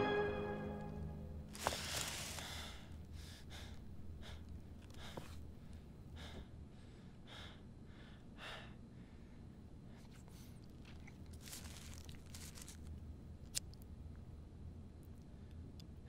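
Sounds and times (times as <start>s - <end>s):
woman breathing hard: 1.6s - 9.4s.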